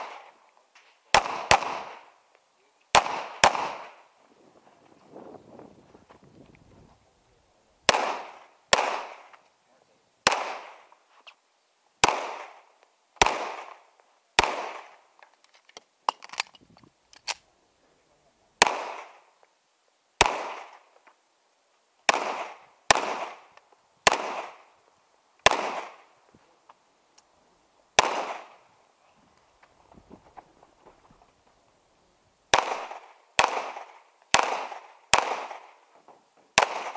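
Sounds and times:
pistol shots echoing: 0:01.1 - 0:02.2, 0:02.9 - 0:04.0, 0:07.9 - 0:09.3, 0:10.2 - 0:10.9, 0:12.0 - 0:13.8, 0:14.4 - 0:15.0, 0:18.6 - 0:19.2, 0:20.2 - 0:20.8, 0:22.1 - 0:24.7, 0:25.4 - 0:26.1, 0:28.0 - 0:28.6, 0:32.5 - 0:35.8, 0:36.6 - 0:36.9.

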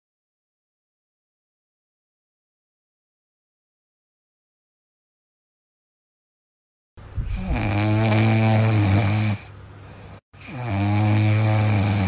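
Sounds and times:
dog snoring: 0:07.2 - 0:12.0.

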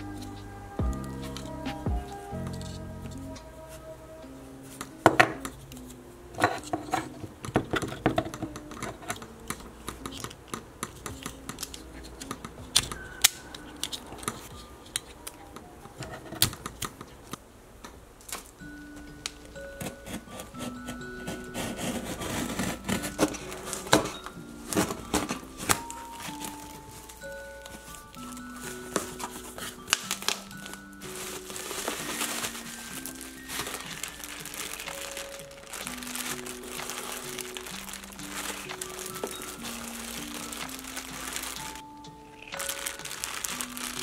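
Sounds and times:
soft background music: 0:00.0 - 0:44.0
plastic bags crinkling: 0:20.6 - 0:44.0.

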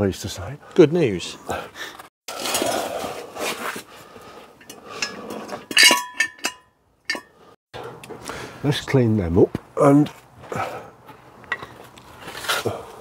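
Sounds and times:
metal tools clinking on metal: 0:04.6 - 0:07.4.

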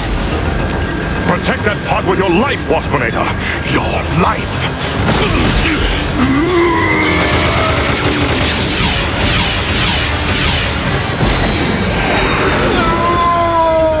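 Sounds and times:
background music: 0:00.0 - 0:14.0
cartoon blasts and explosions: 0:04.9 - 0:14.0.

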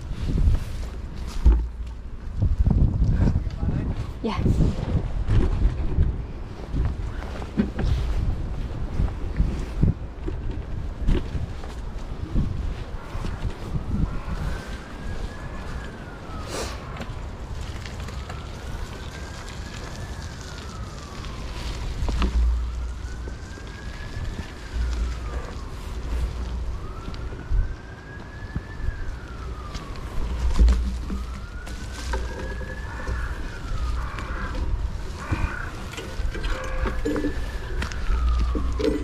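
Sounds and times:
wind buffeting microphone: 0:00.0 - 0:39.0
siren wailing: 0:12.2 - 0:39.0.

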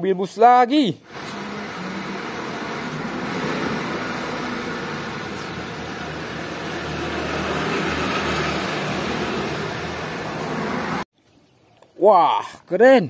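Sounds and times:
minibus engine running: 0:01.1 - 0:11.1
motorcycles passing: 0:01.1 - 0:11.1.

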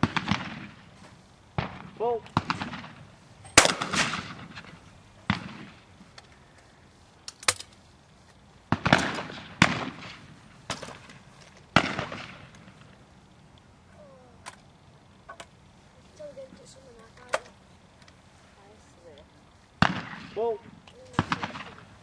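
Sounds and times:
shotgun shots echoing: 0:00.0 - 0:00.9, 0:01.5 - 0:05.9, 0:08.7 - 0:12.9, 0:19.8 - 0:22.0.

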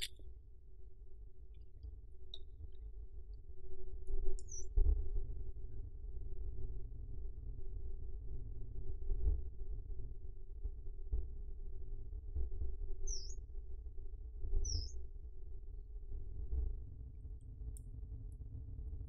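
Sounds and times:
small bird chirps: 0:04.4 - 0:04.7, 0:13.1 - 0:13.4, 0:14.6 - 0:15.0.

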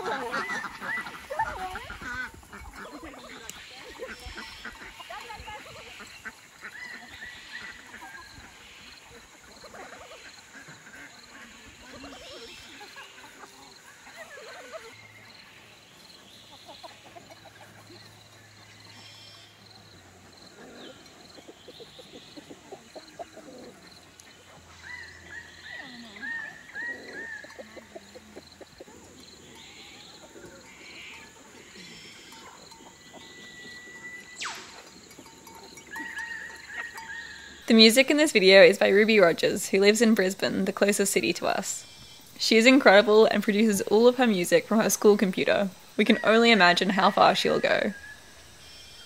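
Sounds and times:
bird calls: 0:00.0 - 0:49.0
farm animal noises: 0:00.0 - 0:49.0
chickens clucking softly: 0:16.4 - 0:18.3, 0:20.3 - 0:25.1, 0:25.8 - 0:33.6
repeated bird chirps: 0:34.2 - 0:35.0.

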